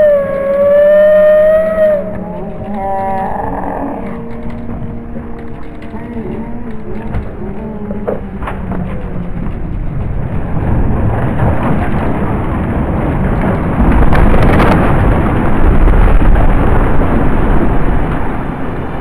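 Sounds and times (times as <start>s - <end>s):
chimney collapsing rumble: 0.0s - 19.0s
brickwork crashing to the ground: 8.8s - 17.3s.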